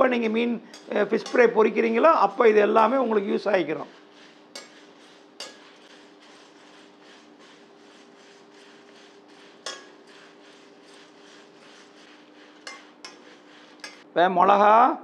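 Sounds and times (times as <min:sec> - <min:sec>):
spices scraping and rustling in pan: 0:00.0 - 0:14.1
spoon clinking against pan: 0:04.6 - 0:05.7, 0:09.6 - 0:10.0.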